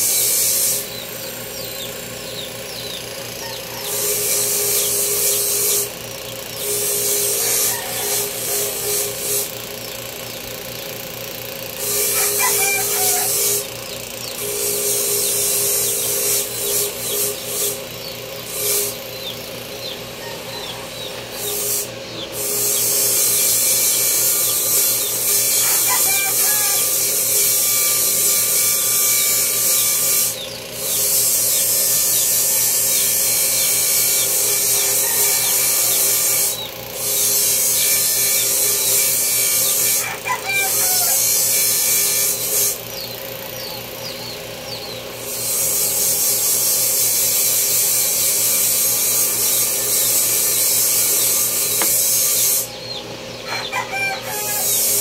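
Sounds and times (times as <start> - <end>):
power grinder running: 0.0 - 55.0
rooster crowing: 3.0 - 5.5, 6.8 - 9.4, 11.8 - 13.7, 19.8 - 29.2, 34.2 - 36.7, 39.8 - 42.3, 53.4 - 55.0.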